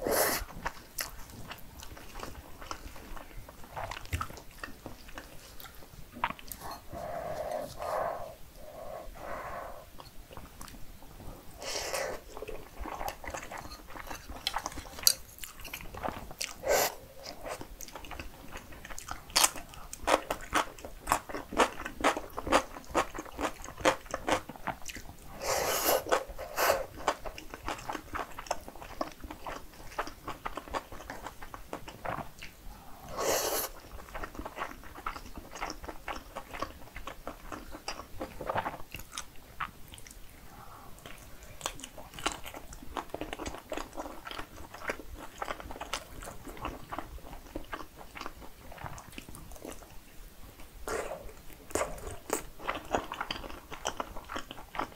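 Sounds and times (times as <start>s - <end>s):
close chewing mouth sounds: 0.1s - 54.9s.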